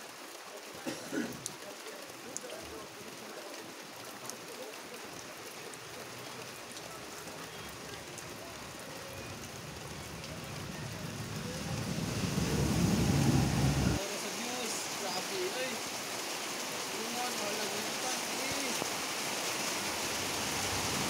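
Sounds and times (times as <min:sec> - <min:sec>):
rain on leaves: 0:00.0 - 0:21.0
low rumble: 0:09.8 - 0:14.0.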